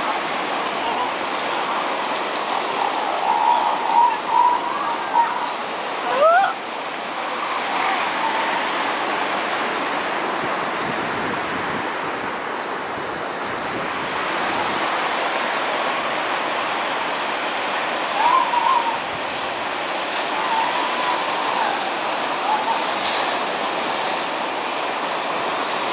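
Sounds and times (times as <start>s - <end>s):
surf washing onto rocky beach: 0.0s - 25.9s
wavering call: 2.5s - 6.6s, 17.9s - 23.8s.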